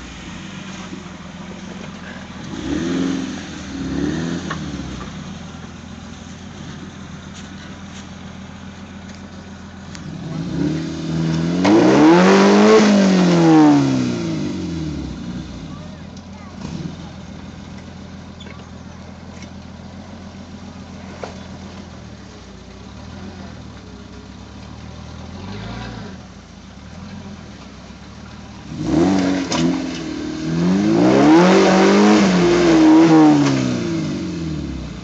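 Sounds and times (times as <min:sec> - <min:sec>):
engine ticking over: 0:00.0 - 0:30.7.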